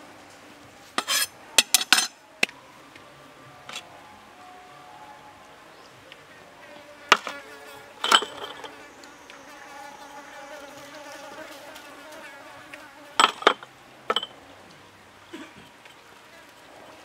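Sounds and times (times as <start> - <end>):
ceramic cups clinking: 1.0 - 2.2, 8.0 - 8.8, 13.2 - 14.4
fly buzzing: 6.7 - 13.4.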